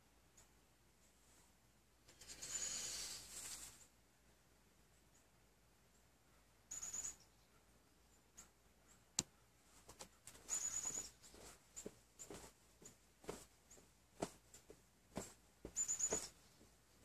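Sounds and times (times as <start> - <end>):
fabric handling: 9.8 - 17.0.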